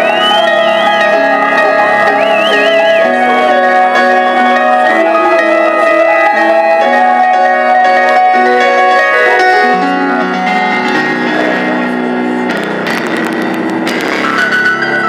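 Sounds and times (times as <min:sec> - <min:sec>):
piano chords: 0:00.0 - 0:15.0.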